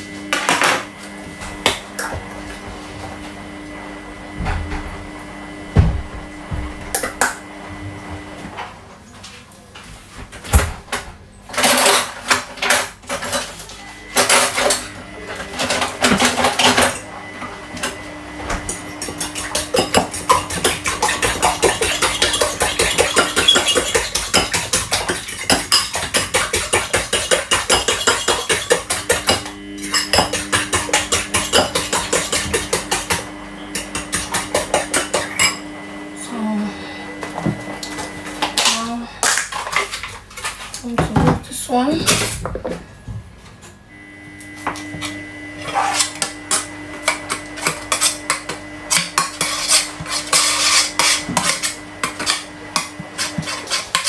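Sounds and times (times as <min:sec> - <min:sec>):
fork beating eggs in a bowl: 0:18.7 - 0:35.6, 0:45.7 - 0:54.0.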